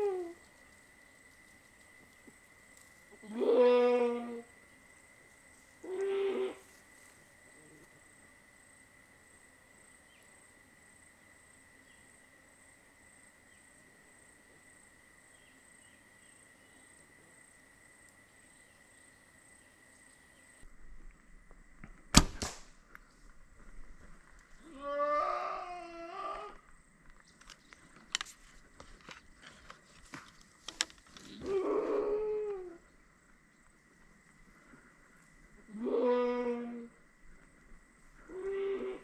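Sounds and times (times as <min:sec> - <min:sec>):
bow shot crack: 0:21.8 - 0:23.0.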